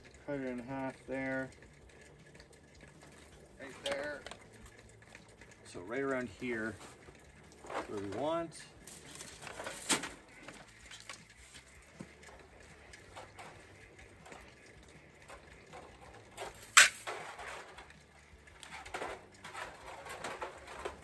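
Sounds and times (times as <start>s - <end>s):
tools rattling in metal cart: 5.8s - 14.6s, 15.2s - 21.0s.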